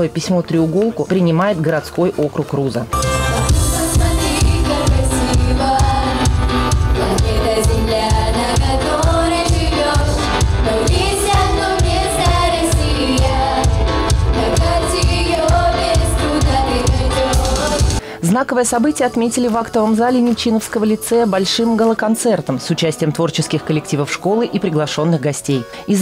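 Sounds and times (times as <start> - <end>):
music with heavy beat: 3.0 - 18.0
children's choir singing: 3.3 - 18.0.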